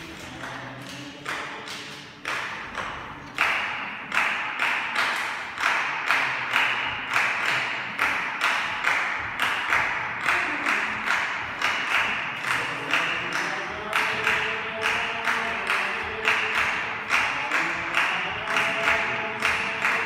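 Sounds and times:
hand percussion ensemble: 0.0 - 20.0.

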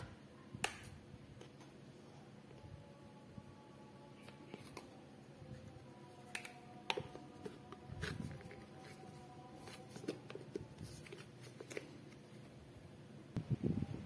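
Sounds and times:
plastic containers and spoon clicking: 6.2 - 8.8.

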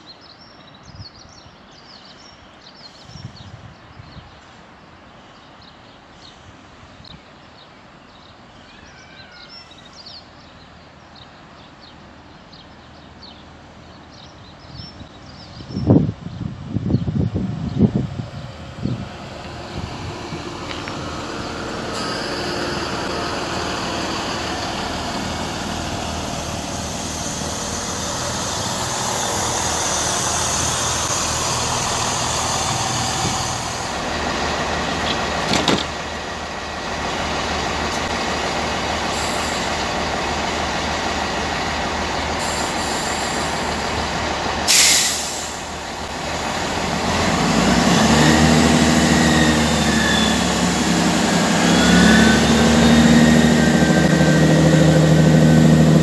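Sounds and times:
diesel locomotive engine drone: 9.4 - 56.0
rail rumble: 10.2 - 56.0
loud rush of noise: 18.0 - 56.0.

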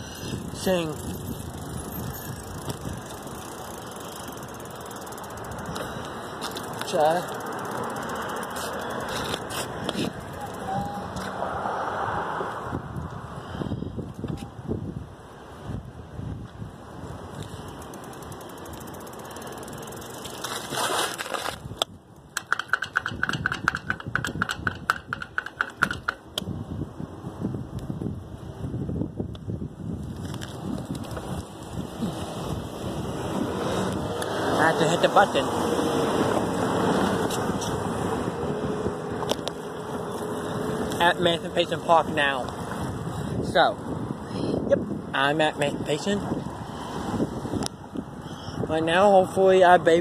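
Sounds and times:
bicycle freewheel ticking: 0.0 - 9.5, 17.6 - 20.6
wind noise: 0.0 - 50.0.

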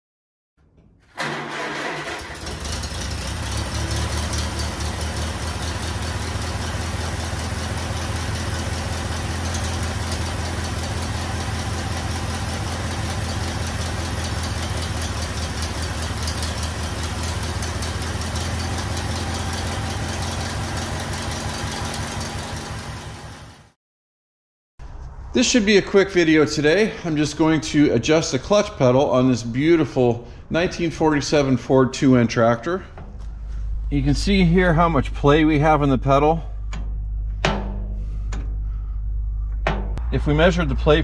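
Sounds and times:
engine starting and running: 0.6 - 23.8, 28.8 - 41.0.

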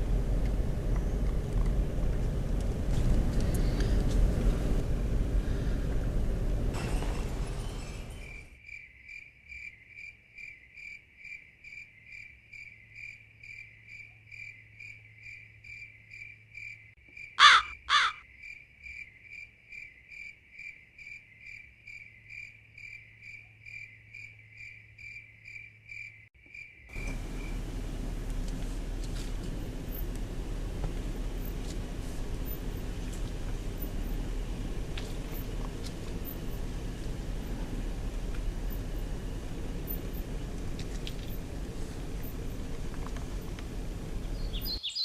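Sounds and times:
insect chirping: 8.2 - 27.7
loud downward-sweeping calls: 17.4 - 18.2.

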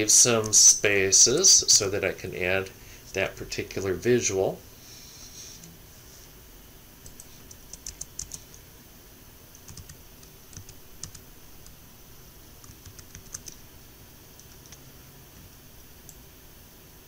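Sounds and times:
keyboard keys clicking: 7.0 - 8.4, 9.6 - 11.2, 12.6 - 13.6.

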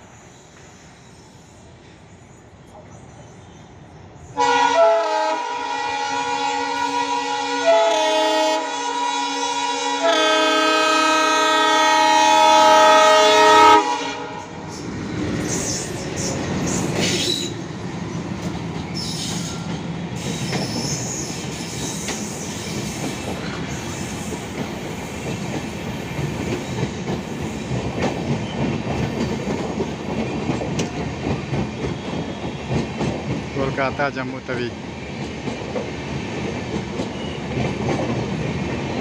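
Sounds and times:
train rushing past: 0.0 - 39.0
locomotive horn: 4.4 - 14.5.

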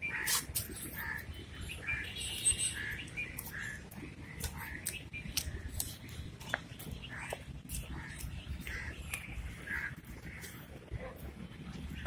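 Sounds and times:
birds chirping: 0.0 - 12.0
steady low rumble: 2.8 - 12.0.

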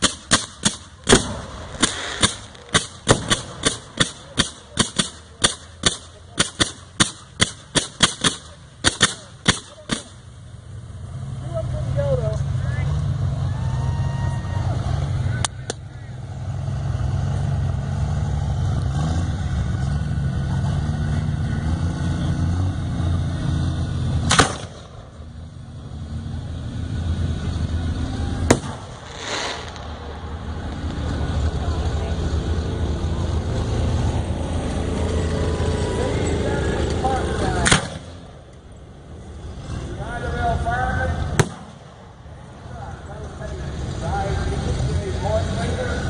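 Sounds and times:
firework shells bursting: 0.0 - 10.2, 28.5 - 31.1, 41.4 - 41.8
low rumble: 22.8 - 35.1.

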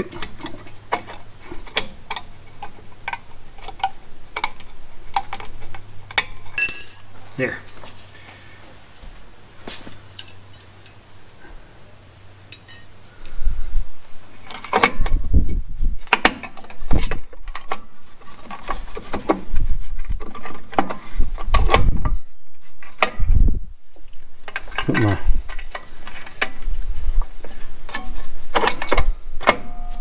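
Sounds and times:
metal springs clinking and rattling: 0.0 - 7.2, 9.6 - 11.1, 12.5 - 13.0, 24.4 - 26.6.

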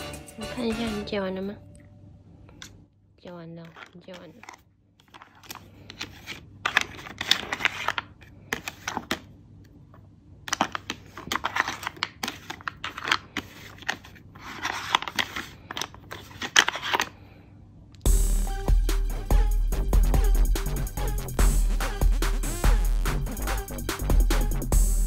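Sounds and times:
plastic puzzle pieces clacking: 3.6 - 9.3, 10.5 - 17.1.

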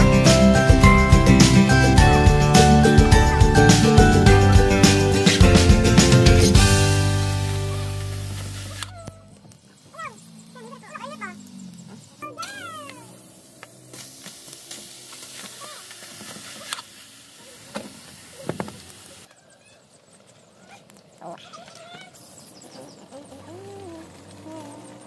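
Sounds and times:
wood fire crackling: 0.7 - 19.3
fire popping: 2.7 - 19.3
animal calls: 8.6 - 13.2, 19.2 - 25.0.

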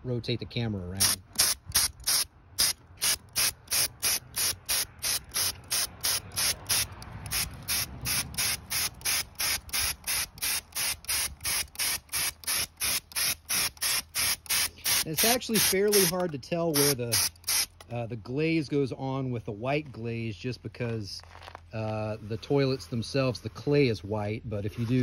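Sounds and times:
spray gun hissing: 1.4 - 16.2.

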